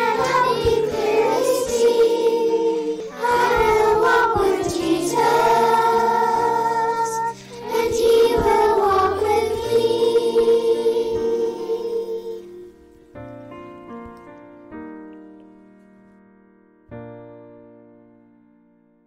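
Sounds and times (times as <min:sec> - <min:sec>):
children singing a hymn: 0:00.0 - 0:12.8
soft instrumental accompaniment: 0:00.0 - 0:18.6.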